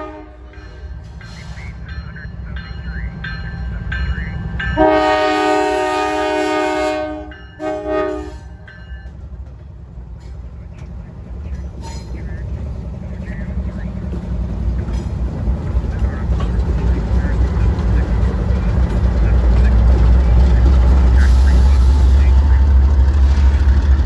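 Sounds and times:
locomotive air horn blasts: 0.0s - 0.5s, 4.8s - 8.5s
diesel engine rumble: 0.0s - 5.0s, 8.5s - 24.0s.

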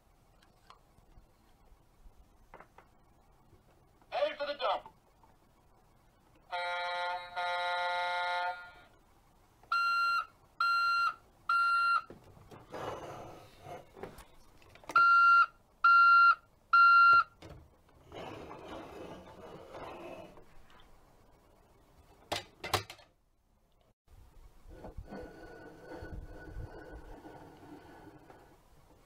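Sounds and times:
reversing alarm beeps: 9.7s - 12.1s, 15.0s - 17.3s.

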